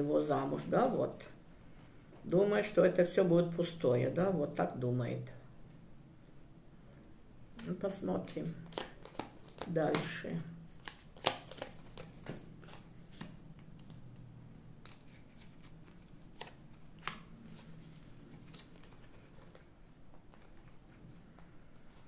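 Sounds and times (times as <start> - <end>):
playing cards snapping and tapping: 8.6 - 10.1, 10.8 - 12.4.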